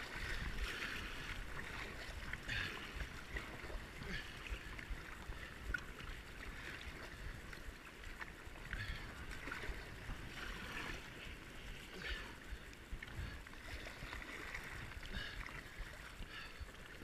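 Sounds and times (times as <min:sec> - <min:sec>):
wind rumble on microphone: 0:00.0 - 0:11.8
water splashes: 0:00.0 - 0:17.0.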